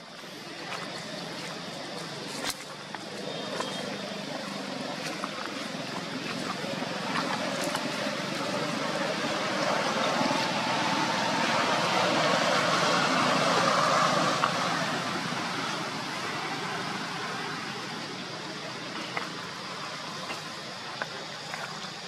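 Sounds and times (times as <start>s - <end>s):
vehicle passing: 3.0s - 20.2s.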